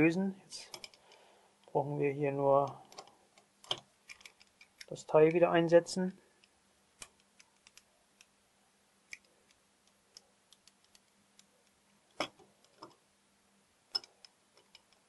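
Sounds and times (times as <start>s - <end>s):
small metal clicks: 0.6s - 1.8s, 2.6s - 5.4s, 6.4s - 8.3s, 9.1s - 13.0s, 13.9s - 15.0s.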